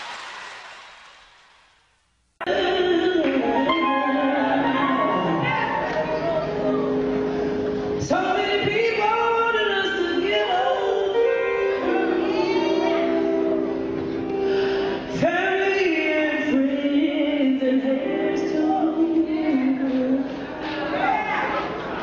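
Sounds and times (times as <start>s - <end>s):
woman singing gospel: 2.4s - 7.0s, 8.0s - 20.5s.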